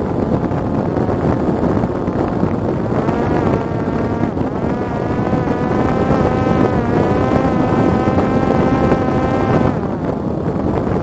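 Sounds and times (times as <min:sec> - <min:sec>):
wind rush: 0:00.0 - 0:11.0
drone propeller whining: 0:02.3 - 0:10.3.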